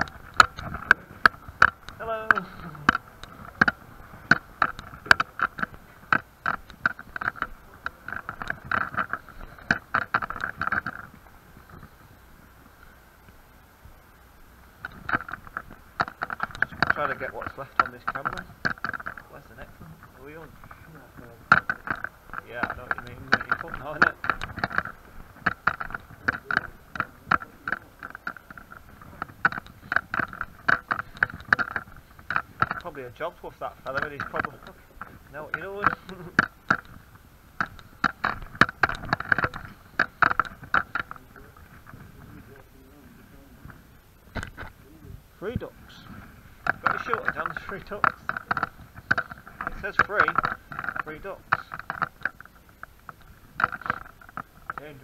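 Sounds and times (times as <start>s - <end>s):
footsteps crunching over rubble: 15.0s - 42.5s, 45.4s - 55.0s.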